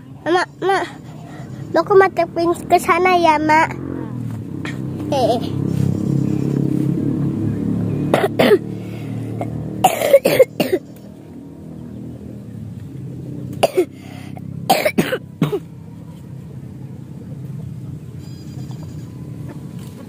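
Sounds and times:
person coughing: 0:08.2 - 0:08.7, 0:09.8 - 0:10.8, 0:13.6 - 0:14.0, 0:14.7 - 0:15.7.

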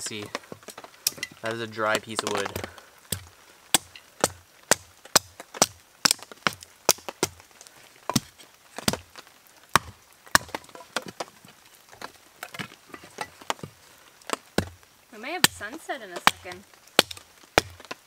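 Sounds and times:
hatchet chopping sticks: 0:00.0 - 0:07.4.

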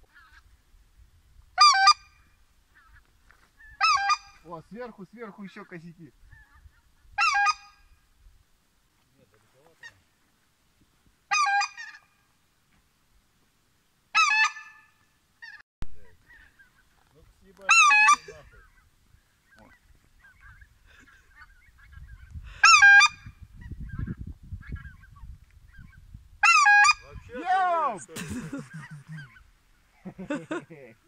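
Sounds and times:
goose call honks: 0:01.6 - 0:03.0, 0:03.6 - 0:04.5, 0:06.4 - 0:08.0, 0:11.3 - 0:12.2, 0:14.2 - 0:16.6, 0:17.7 - 0:18.8, 0:22.6 - 0:23.3, 0:26.4 - 0:29.4
geese honking overhead: 0:01.6 - 0:08.0, 0:11.3 - 0:12.3, 0:14.1 - 0:30.2.

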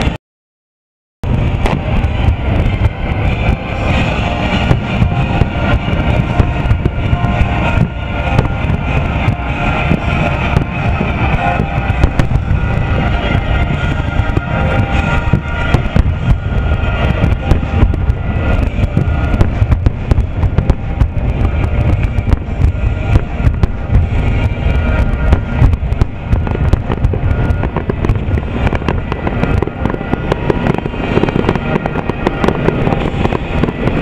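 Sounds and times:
fireworks bursting: 0:01.3 - 0:34.0
music playing: 0:01.3 - 0:34.0.

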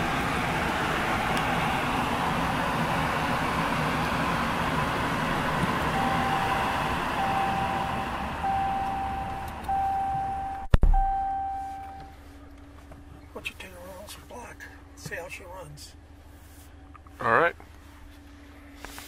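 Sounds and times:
car engine idling: 0:00.0 - 0:17.0
dashboard chime tones: 0:06.0 - 0:12.1.

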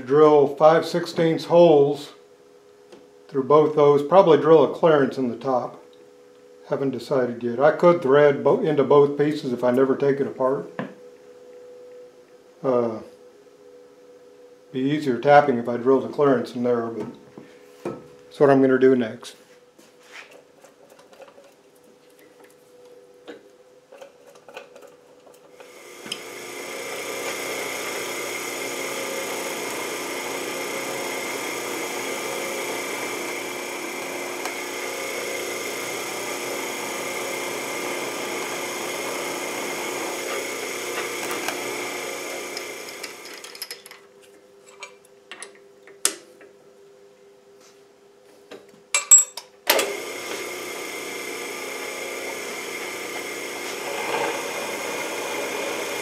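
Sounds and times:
drill bit cutting metal: 0:25.6 - 0:43.6, 0:49.8 - 0:56.0
drill press motor humming: 0:25.6 - 0:43.6, 0:49.7 - 0:56.0.

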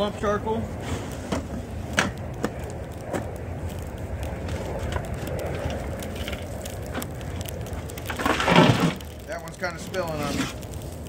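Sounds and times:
charcoal rustling: 0:00.0 - 0:11.0
steady low rumble: 0:00.0 - 0:11.0.

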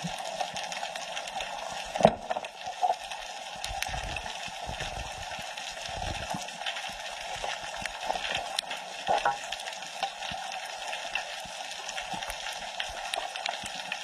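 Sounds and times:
underwater knocks: 0:09.1 - 0:09.4.

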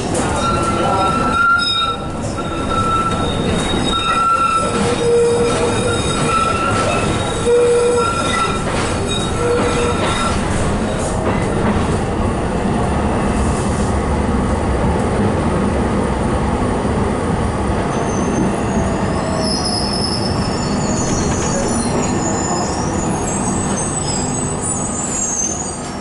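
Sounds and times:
tram rumbling over rails: 0:00.0 - 0:26.0
high-pitched wheel squeal: 0:00.3 - 0:10.4, 0:18.0 - 0:26.0.

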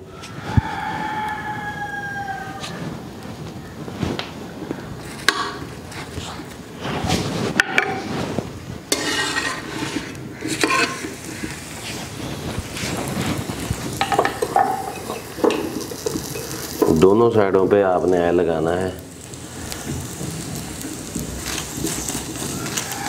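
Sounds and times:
oil sizzling: 0:04.2 - 0:23.0
spoon scraping on iron griddle: 0:05.0 - 0:17.2, 0:19.2 - 0:23.0.

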